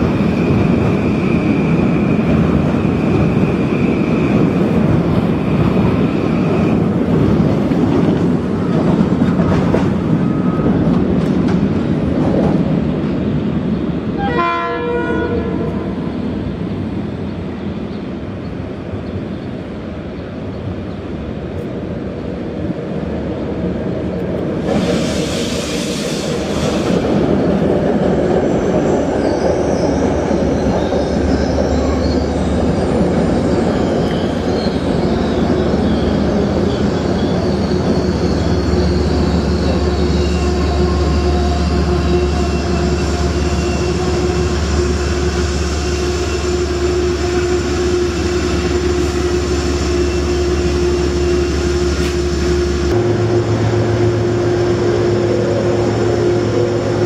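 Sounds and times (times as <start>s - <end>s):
train hum: 0.0s - 57.0s
train wheels rumbling on rail: 0.0s - 57.0s
high wheel squeal: 28.5s - 57.0s.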